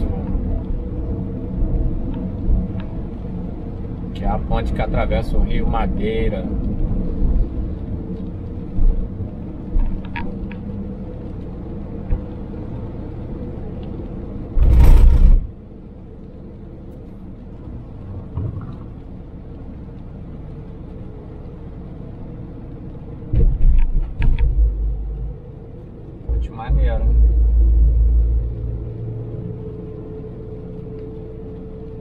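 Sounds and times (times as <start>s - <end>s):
car engine and road rumble: 0.0s - 32.0s
loud rush of noise: 14.5s - 15.6s
low thumps: 14.6s - 15.5s, 26.2s - 29.6s.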